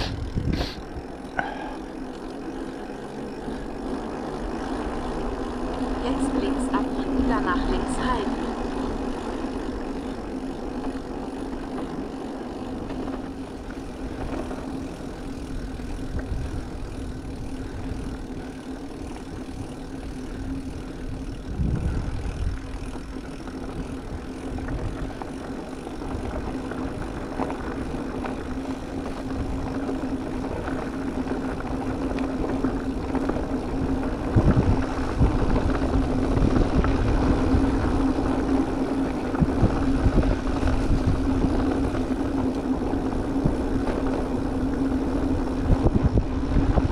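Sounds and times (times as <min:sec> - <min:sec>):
electric bike motor hum: 0:00.0 - 0:46.9
wind rumble: 0:00.0 - 0:46.9.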